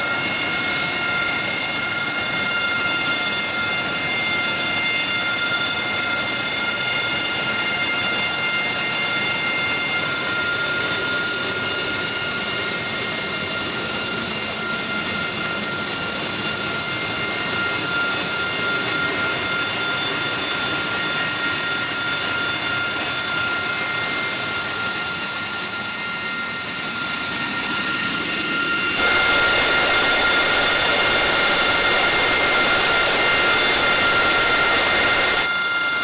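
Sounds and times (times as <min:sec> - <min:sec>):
jet engine whine: 0:00.0 - 0:36.0
harsh jet noise: 0:26.6 - 0:35.6.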